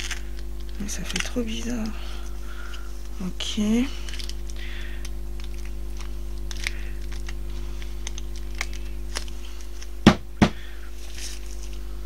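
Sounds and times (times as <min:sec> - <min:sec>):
steady low hum: 0:00.0 - 0:12.0
sharp knocks: 0:10.1 - 0:10.6.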